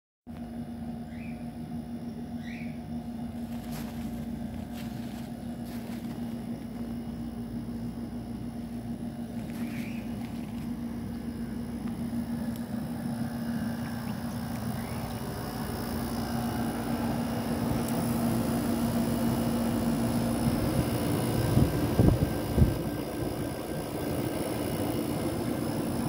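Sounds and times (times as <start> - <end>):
pump steady electric hum: 0.3 - 26.0.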